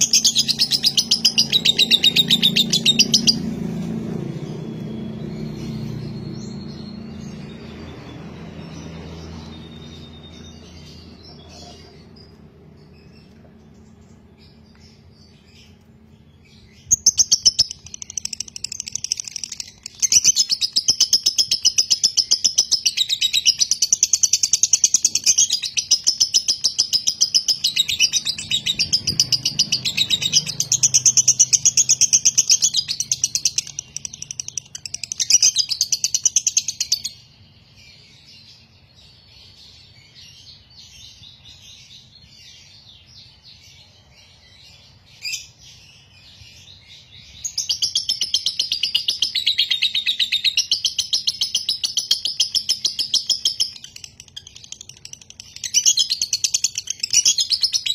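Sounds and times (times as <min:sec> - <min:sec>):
lovebird chattering: 0:00.0 - 0:04.6.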